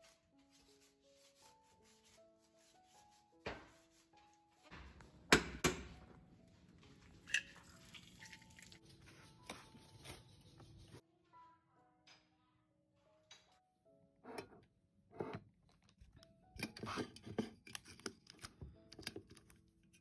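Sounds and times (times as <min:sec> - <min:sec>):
soft background music: 0:00.0 - 0:20.0.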